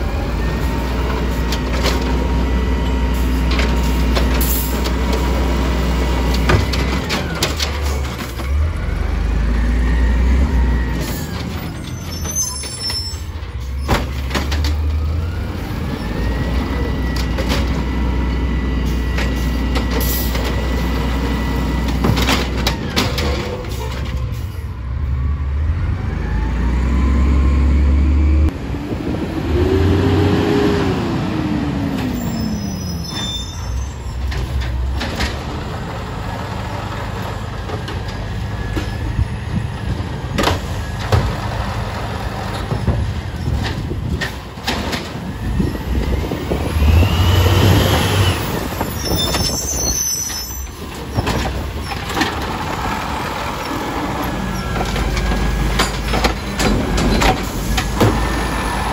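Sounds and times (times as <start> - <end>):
diesel engine revving: 0.0 - 12.1, 24.2 - 33.0, 34.0 - 50.0, 50.7 - 58.9.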